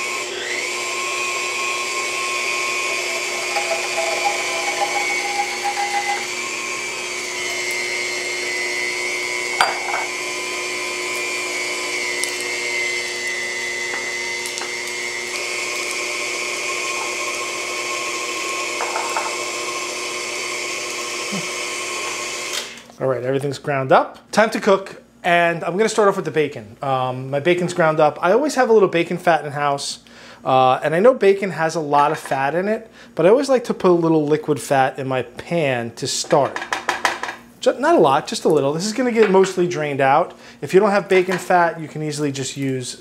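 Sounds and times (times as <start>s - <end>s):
stand mixer motor whine: 0.0s - 22.8s.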